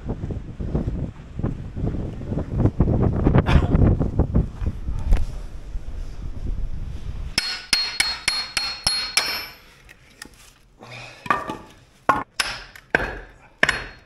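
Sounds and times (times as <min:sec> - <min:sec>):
wind buffeting microphone: 0:00.0 - 0:07.4
blade hammered through log: 0:07.4 - 0:09.5, 0:12.1 - 0:14.0.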